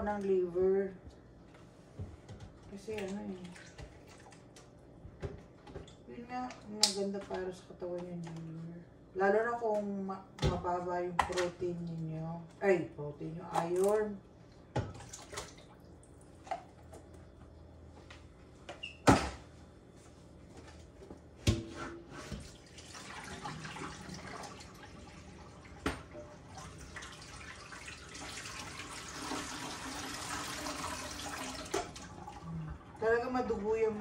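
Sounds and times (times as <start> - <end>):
tap water running into sink: 22.4 - 33.0.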